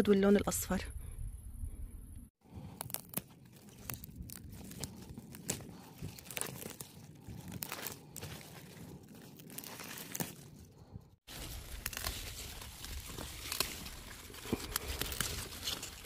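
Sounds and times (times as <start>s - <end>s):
leaves rustling and crinkling: 2.5s - 16.0s
stalks snapping: 2.6s - 10.6s, 11.3s - 16.0s.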